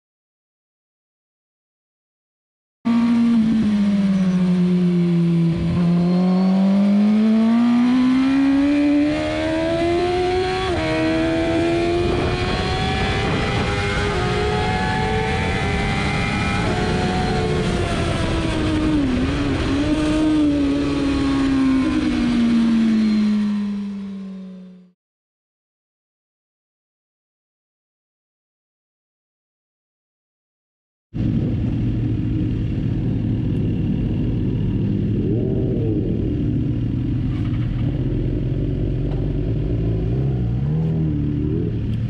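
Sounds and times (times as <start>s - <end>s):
motorcycle engine at high revs: 2.9s - 24.9s, 31.2s - 42.0s
wind rush: 10.8s - 22.7s, 31.2s - 38.6s.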